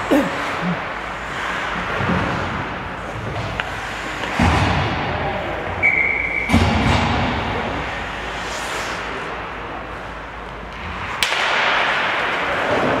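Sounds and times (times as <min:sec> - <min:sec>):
skates scraping on ice: 0:00.0 - 0:04.7, 0:07.7 - 0:13.0
hockey stick crack: 0:10.4 - 0:13.0.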